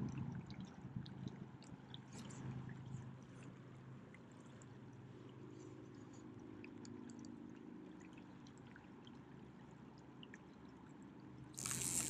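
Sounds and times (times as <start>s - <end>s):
river flowing and trickling: 0.0s - 12.0s
small ticks: 6.1s - 7.4s, 11.6s - 12.0s.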